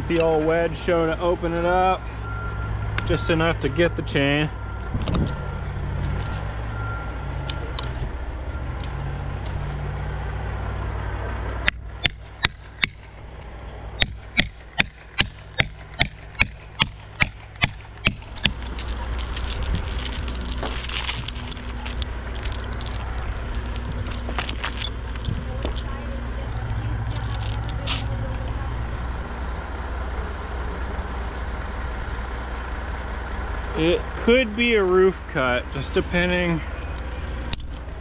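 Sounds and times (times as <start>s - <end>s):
hammer striking wedge: 14.0s - 18.6s
chain scraping and rattling: 17.8s - 28.4s.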